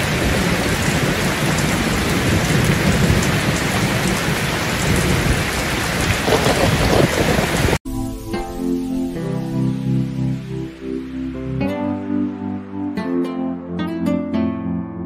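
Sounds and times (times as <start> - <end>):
heavy rain pouring: 0.0 - 7.8
runoff water rushing along channel: 0.0 - 7.8.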